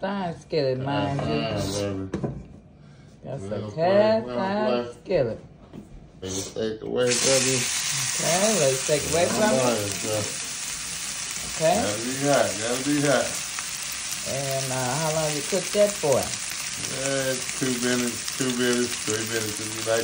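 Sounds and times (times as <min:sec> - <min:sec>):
steak sizzling in skillet: 0:07.1 - 0:20.0.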